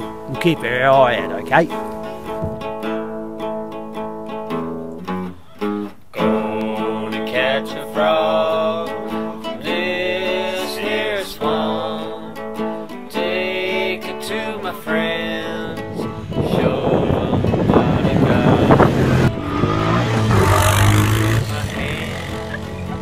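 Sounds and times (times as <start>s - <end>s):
acoustic guitar: 0.0s - 23.0s
person singing: 6.1s - 23.0s.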